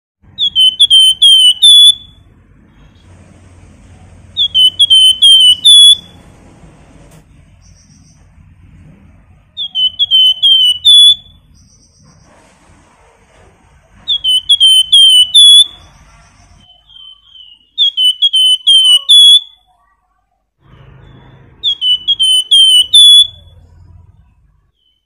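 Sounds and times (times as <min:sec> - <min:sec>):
songbird whistling call: 0:00.4 - 0:02.2, 0:04.4 - 0:06.2, 0:09.6 - 0:12.3, 0:14.1 - 0:19.7, 0:21.1 - 0:23.6.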